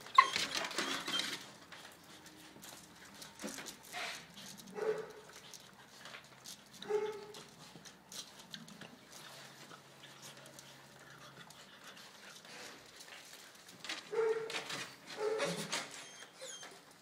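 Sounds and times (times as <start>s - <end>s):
puppies scuffling: 0.0s - 17.0s
puppy high yips: 0.1s - 1.4s, 15.2s - 16.9s.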